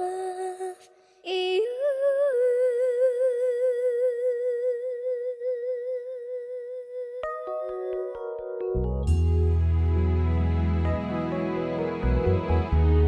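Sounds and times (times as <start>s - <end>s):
woman singing with vibrato: 0.0s - 7.5s.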